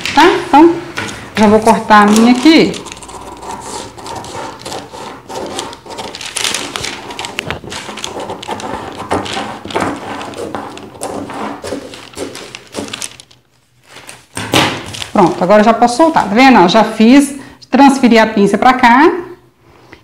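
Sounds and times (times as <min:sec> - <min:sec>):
scissors snipping paper: 0:01.6 - 0:13.4
paper crunching: 0:01.6 - 0:16.2.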